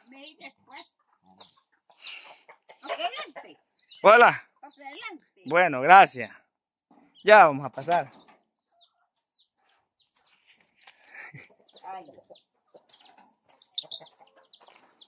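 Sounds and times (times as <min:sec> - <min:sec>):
chickens clucking softly: 0:06.9 - 0:15.0.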